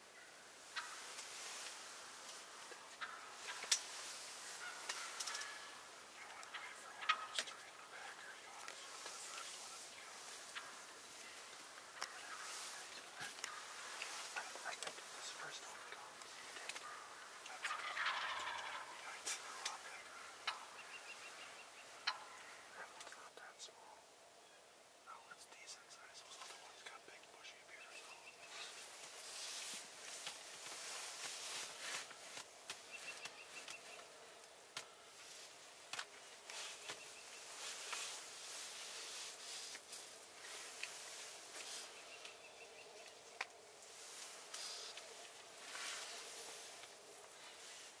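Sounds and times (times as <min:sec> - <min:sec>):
soft steady hiss: 0:00.0 - 0:48.0
wild turkey gobbling: 0:00.2 - 0:24.1.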